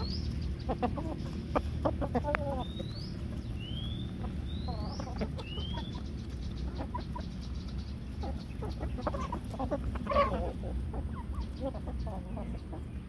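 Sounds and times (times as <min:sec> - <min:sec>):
bird chirps: 0:00.0 - 0:10.4
chickens clucking: 0:00.0 - 0:13.0
steady low rumble: 0:00.0 - 0:13.0.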